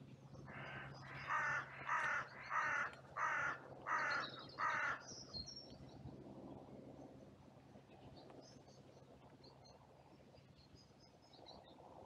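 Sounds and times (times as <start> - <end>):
crow cawing: 0.5 - 5.0.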